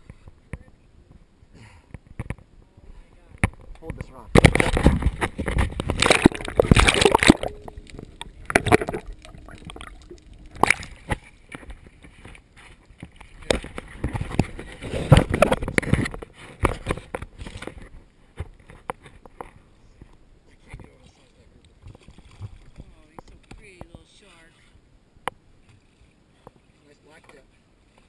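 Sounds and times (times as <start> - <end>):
water splashing against kayak: 3.4 - 19.6, 21.6 - 24.2.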